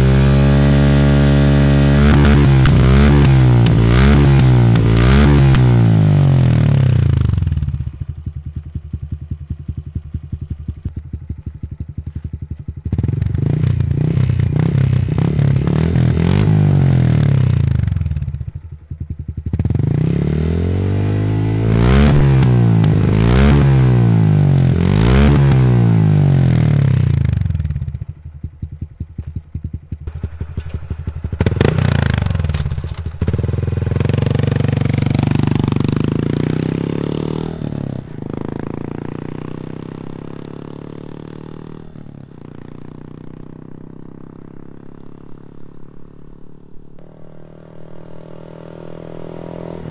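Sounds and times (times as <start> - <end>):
motorcycle engine revving: 0.0 - 49.9.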